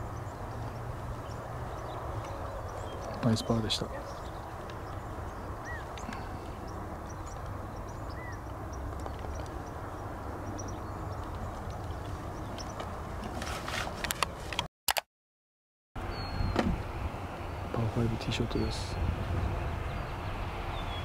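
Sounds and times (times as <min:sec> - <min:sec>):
wind buffeting the microphone: 0:16.1 - 0:21.0.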